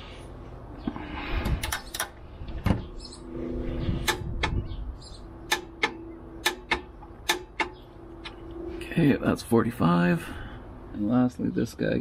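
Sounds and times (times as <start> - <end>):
low hum: 0.0 - 11.1.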